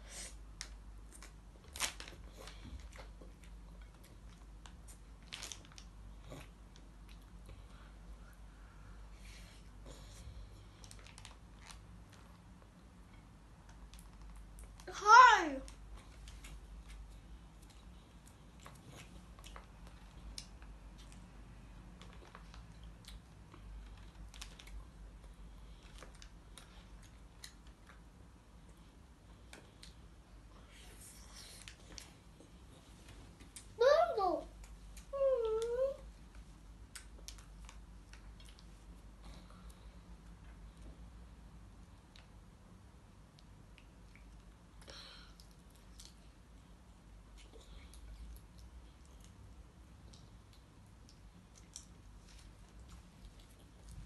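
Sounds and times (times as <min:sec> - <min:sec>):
child chewing mouth sounds: 0:00.0 - 0:14.9, 0:15.7 - 0:33.8, 0:34.4 - 0:54.0
low steady hum: 0:00.0 - 0:54.0
toddler chewing and smacking: 0:15.7 - 0:21.3, 0:34.5 - 0:41.0, 0:43.2 - 0:54.0.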